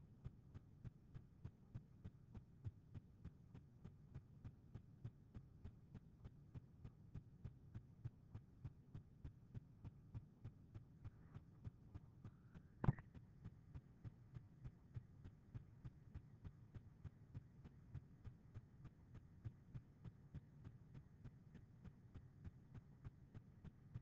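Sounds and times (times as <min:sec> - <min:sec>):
mouse click: 0:12.8 - 0:13.0.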